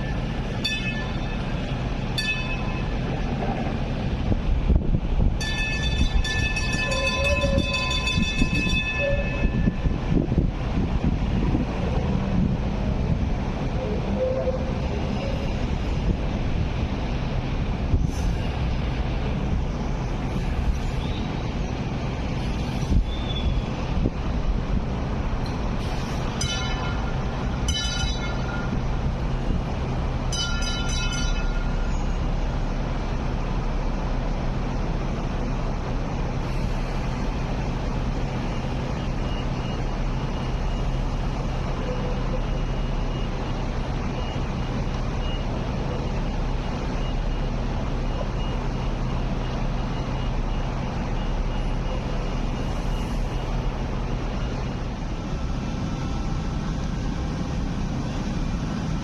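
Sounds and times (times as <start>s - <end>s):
light rail vehicles rumbling: 0.0s - 59.0s
short pitched warning signals: 5.4s - 9.9s, 26.2s - 29.6s, 30.2s - 32.4s.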